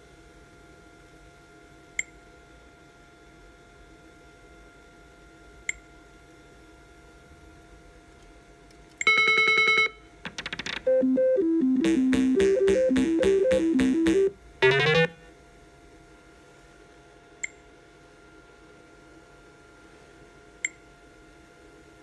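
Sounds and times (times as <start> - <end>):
slot machine electronic beeps: 9.1 - 15.2.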